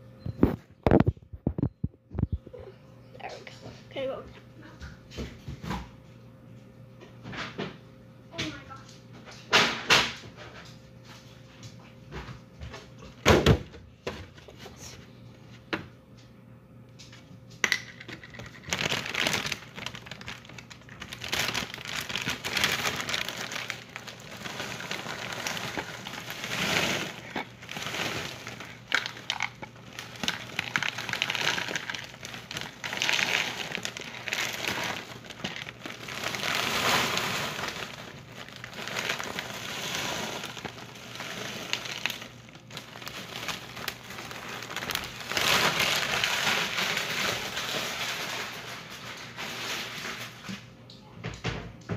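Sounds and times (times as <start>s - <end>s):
cereal rattling into plastic bowl: 17.6s - 50.2s
plastic bag crinkling: 17.8s - 50.4s.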